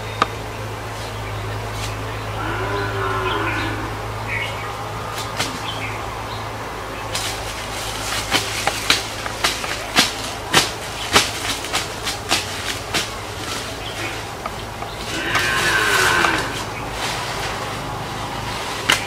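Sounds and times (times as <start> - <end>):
knife chopping vine stems: 5.1 - 6.0, 7.1 - 19.0.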